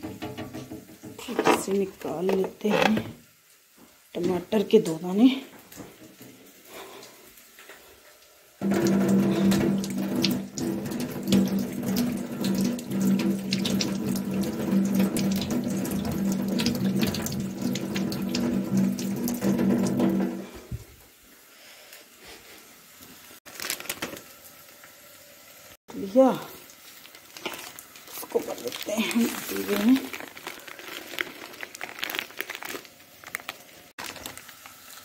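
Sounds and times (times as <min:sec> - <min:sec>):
tap water running into sink: 0:00.0 - 0:01.4, 0:08.6 - 0:20.8.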